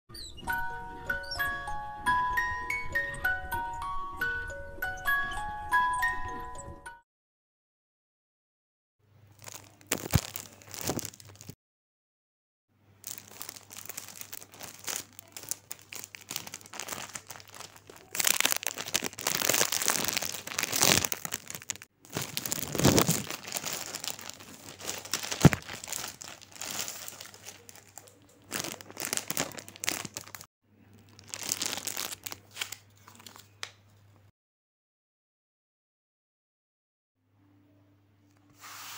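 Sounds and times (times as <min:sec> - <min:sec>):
plastic wrap crinkling: 0:09.3 - 0:11.6, 0:13.0 - 0:33.5.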